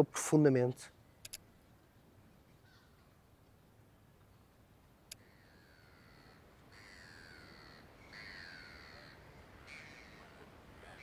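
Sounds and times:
gulls calling: 5.1 - 11.0.

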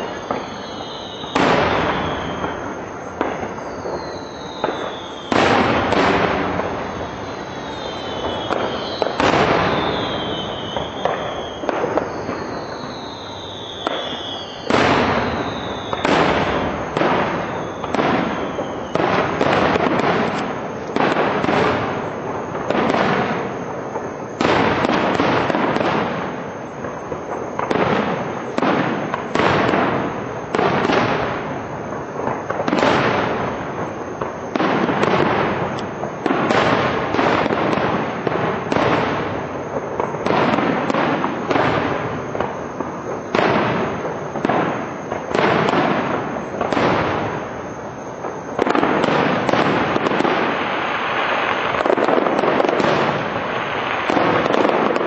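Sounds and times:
falling firework whistle: 0.0 - 55.0
firework shells bursting: 0.0 - 55.0.

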